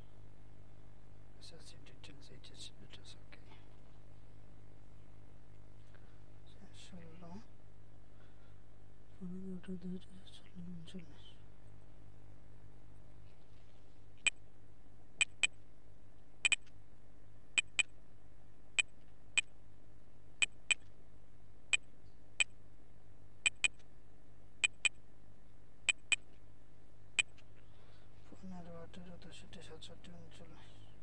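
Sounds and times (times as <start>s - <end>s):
steady low hum: 0.0s - 31.0s
keyboard keys clicking: 23.5s - 23.7s, 24.6s - 24.9s.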